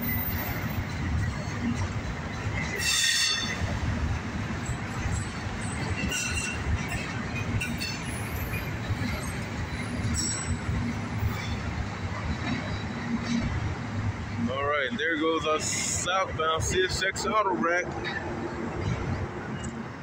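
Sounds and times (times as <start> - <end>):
freight train wheels rumbling: 0.0 - 20.0
steel wheels squealing: 2.6 - 3.7, 4.6 - 13.5.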